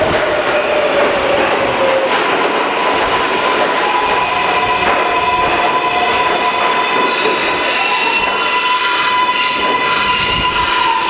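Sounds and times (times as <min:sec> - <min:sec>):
wheels rumbling on rail: 0:00.0 - 0:11.0
high squeal: 0:03.8 - 0:11.0.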